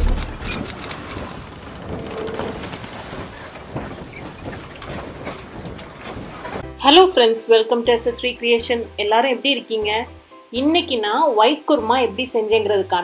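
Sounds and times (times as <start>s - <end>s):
low boom: 0.0s - 0.7s.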